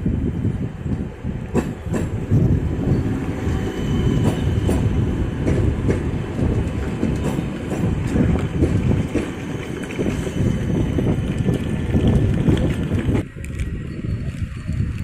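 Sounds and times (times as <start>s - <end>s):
train rolling rumble: 0.0s - 15.0s
wind buffeting microphone: 0.0s - 15.0s
wheels clicking over rail joints: 4.2s - 15.0s.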